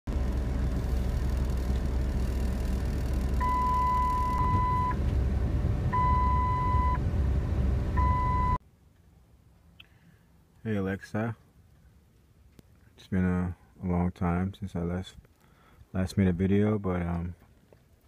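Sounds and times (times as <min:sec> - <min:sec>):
car engine and road rumble: 0:00.0 - 0:09.6
long electronic beep: 0:03.4 - 0:05.0, 0:05.9 - 0:07.0, 0:08.0 - 0:08.6.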